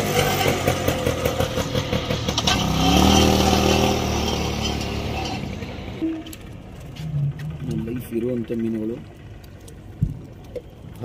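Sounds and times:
vehicle engine revving: 0.0s - 6.0s.

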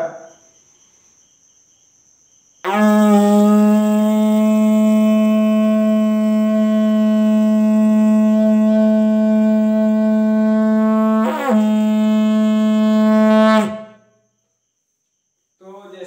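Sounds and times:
plastic tube blown like a horn: 2.6s - 14.0s.

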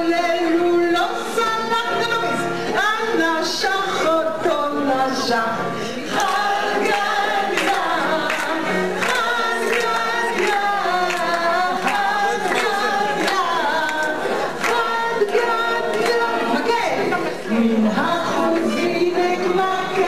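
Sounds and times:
group of people singing: 0.0s - 20.0s
woman singing into a microphone: 0.0s - 20.0s
hand claps on a steady beat: 6.2s - 16.2s.

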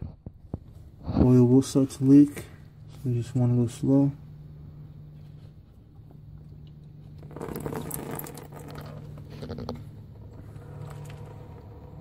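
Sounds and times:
oil pattering down: 5.9s - 11.6s.

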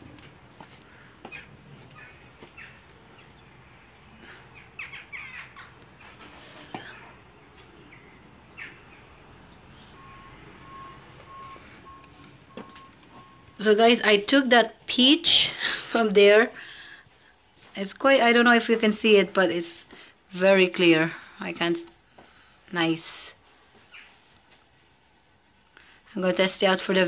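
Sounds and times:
birds chirping and squawking: 0.6s - 10.6s, 23.8s - 24.2s
faint evenly spaced beeps: 9.7s - 14.2s.

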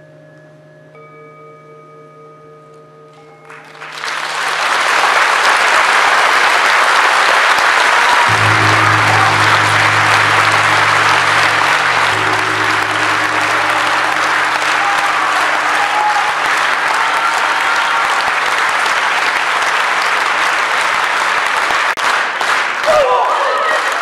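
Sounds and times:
audience applauding: 3.6s - 24.0s
low held tone: 8.3s - 18.6s.

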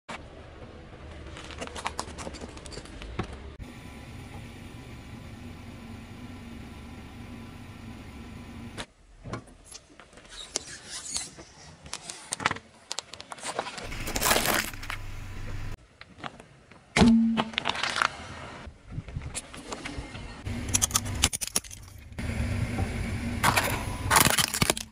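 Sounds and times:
low car hum: 3.4s - 8.9s, 13.8s - 15.8s, 20.4s - 24.2s
plastic cracking under tyre: 12.3s - 15.0s, 23.5s - 24.9s.

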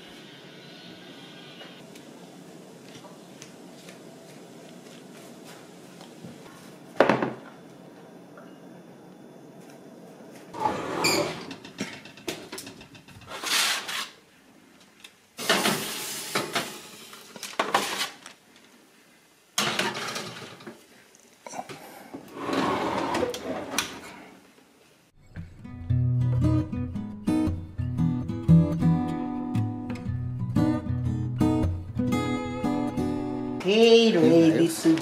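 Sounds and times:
pans and utensils clattering: 11.2s - 13.4s, 19.6s - 20.8s
acoustic guitar music: 25.2s - 35.0s.

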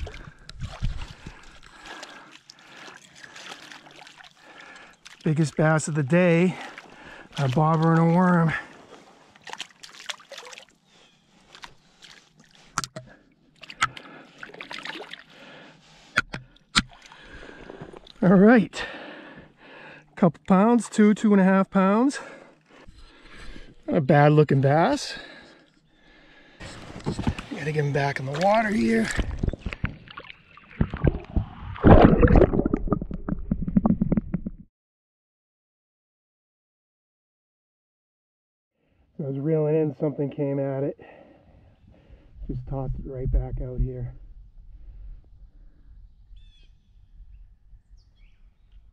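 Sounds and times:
fish splashing in water: 0.0s - 5.2s, 9.3s - 10.8s, 13.6s - 15.3s
water sloshing and splashing: 0.0s - 18.2s, 26.2s - 34.5s
loud splash: 30.8s - 33.1s.

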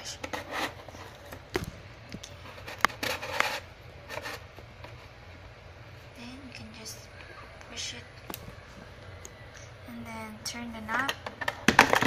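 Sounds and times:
card scraping against cardboard: 0.2s - 1.4s, 2.5s - 4.5s.

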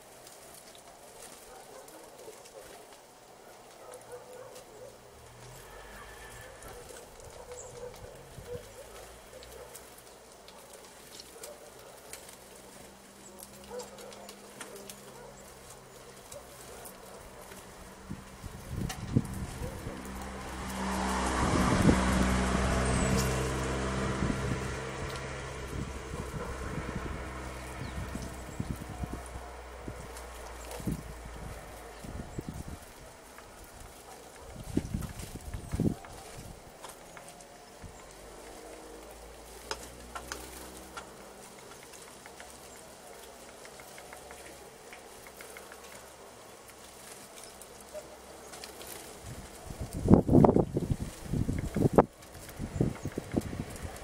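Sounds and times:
vehicle engine passing by: 4.0s - 54.0s
light clicks and taps: 39.6s - 47.8s.

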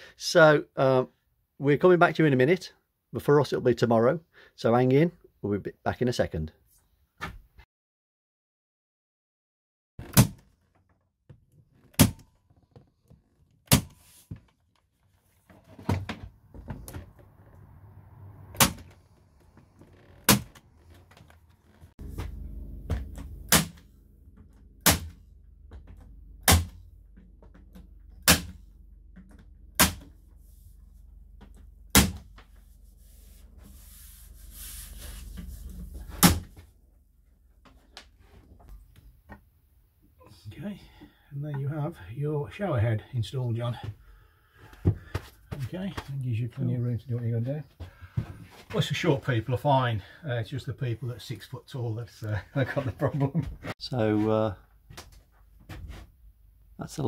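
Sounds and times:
nail gun firing into timber: 26.4s - 26.8s, 28.2s - 28.6s.

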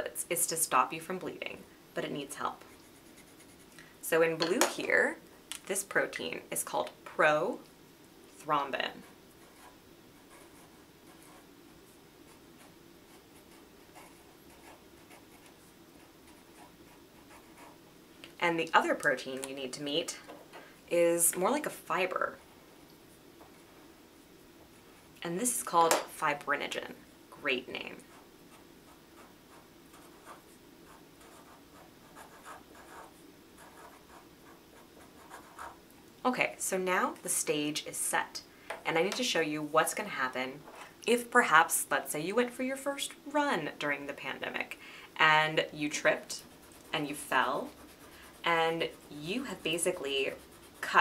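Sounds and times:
marker scratching on paper: 2.8s - 3.7s, 29.1s - 35.8s, 45.9s - 51.0s.

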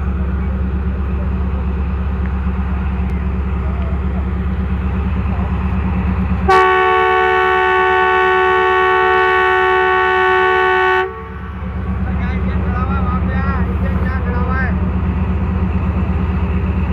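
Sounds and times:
locomotive engine running: 0.0s - 16.9s
locomotive air horn blast: 6.5s - 11.6s.

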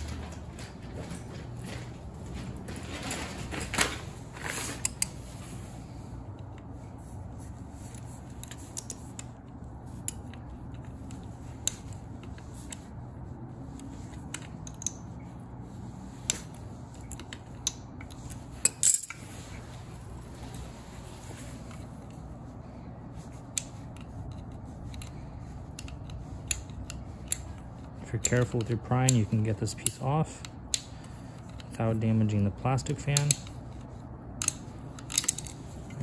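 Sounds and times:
low steady hum: 0.0s - 36.0s
pliers clicking on metal: 23.4s - 31.8s, 32.8s - 33.6s, 34.3s - 35.6s.

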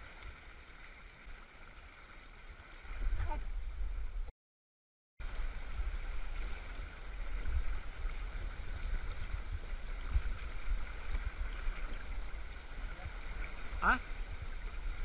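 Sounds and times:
river current rushing: 5.2s - 15.0s.

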